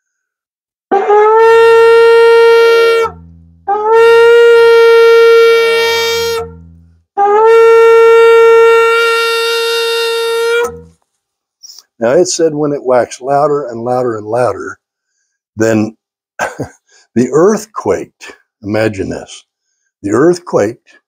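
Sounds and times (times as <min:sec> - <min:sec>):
shofar blasts: 0:00.9 - 0:11.0.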